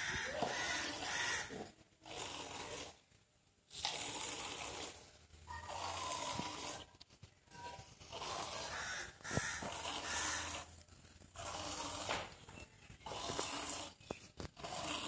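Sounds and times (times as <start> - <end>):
milk squirting into steel pot: 3.7 - 7.0, 13.0 - 15.0.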